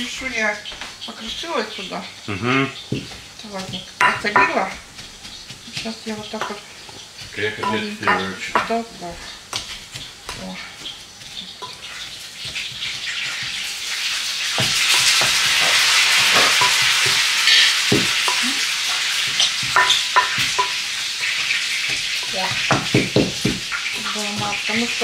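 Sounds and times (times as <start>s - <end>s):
cutlets sizzling in frying pan: 0.0s - 25.0s.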